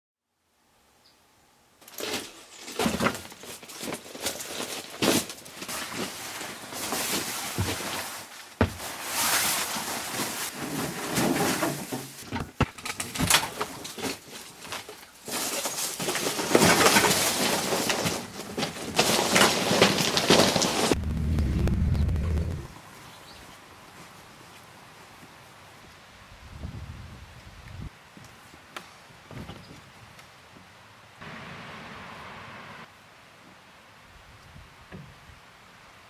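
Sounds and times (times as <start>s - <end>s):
rustling and shuffling: 1.8s - 25.9s.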